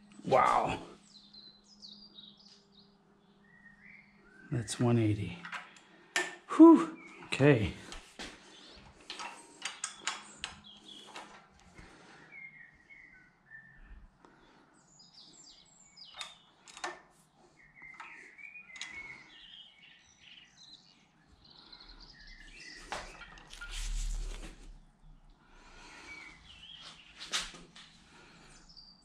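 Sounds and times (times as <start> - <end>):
birds chirping: 0.0 - 29.0
low rumble: 23.6 - 25.2.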